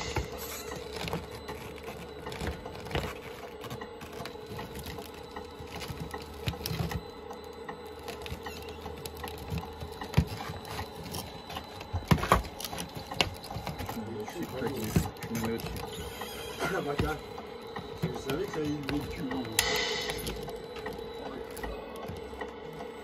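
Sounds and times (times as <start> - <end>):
model bulldozer motor whine: 0.0 - 19.6
track clicks and clatter: 0.0 - 23.0.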